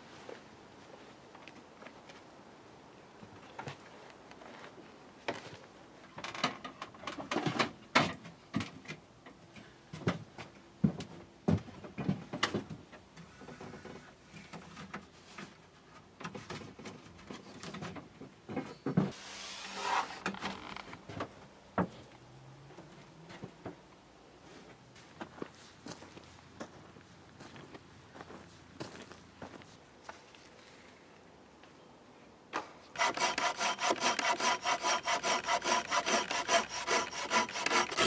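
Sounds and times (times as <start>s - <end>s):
rough scraping rub: 19.1s - 20.6s, 33.0s - 38.0s.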